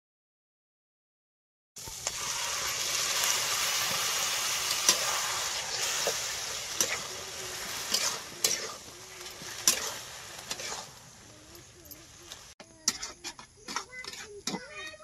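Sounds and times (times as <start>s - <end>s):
leaves sizzling in a wok: 1.8s - 12.9s
spatula scraping and knocking pan: 5.7s - 11.1s, 12.3s - 14.7s.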